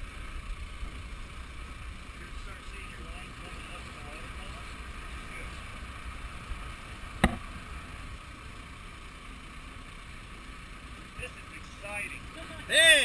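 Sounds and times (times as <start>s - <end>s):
sharp knock: 7.2s - 7.5s.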